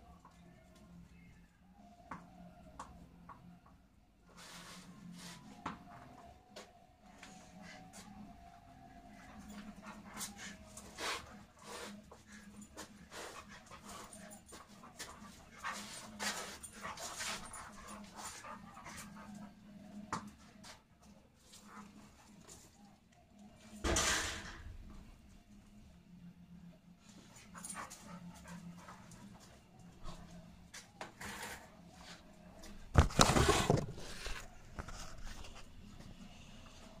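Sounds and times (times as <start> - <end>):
dog panting: 9.1 - 20.1, 27.2 - 30.5
phone being handled rustling: 32.9 - 35.6.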